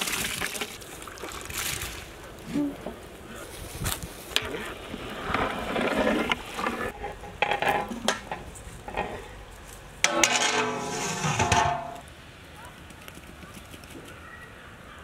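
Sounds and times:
metal cookware knocks and scrapes: 0:06.9 - 0:09.2, 0:10.0 - 0:12.0
metal lid clanging on pot: 0:10.0 - 0:12.0.

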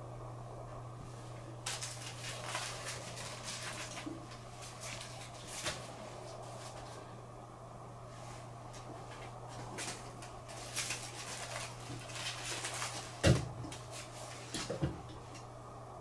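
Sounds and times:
steady low hum: 0:00.0 - 0:16.0
plastic wrapper crinkling: 0:01.6 - 0:05.9, 0:09.5 - 0:14.7.

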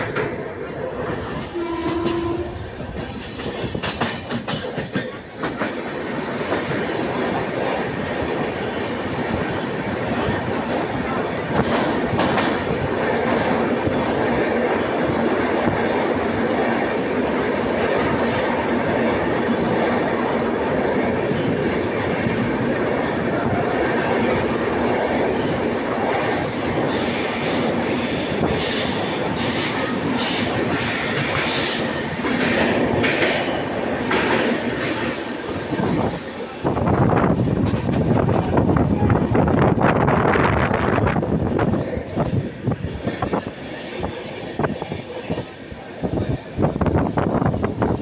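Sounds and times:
train wheel and rail noise: 0:00.0 - 0:48.0
high wheel squeal: 0:26.2 - 0:32.6.

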